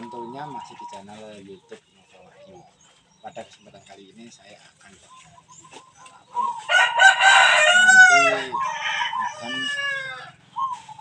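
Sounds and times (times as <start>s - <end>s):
rooster crowing: 6.4s - 10.4s.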